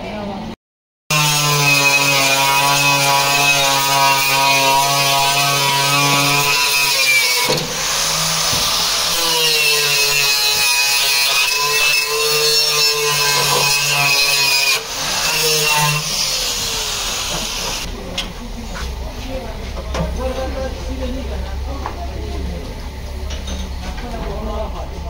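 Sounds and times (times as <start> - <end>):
angle grinder grinding metal: 1.1 - 17.9.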